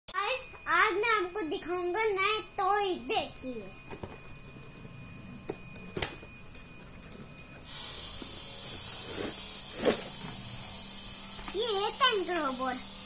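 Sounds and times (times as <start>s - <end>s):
steady hiss: 7.6s - 13.0s.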